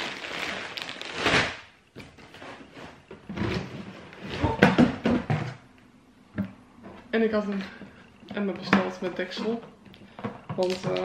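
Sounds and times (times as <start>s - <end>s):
plastic bag crinkling: 0.0s - 1.7s.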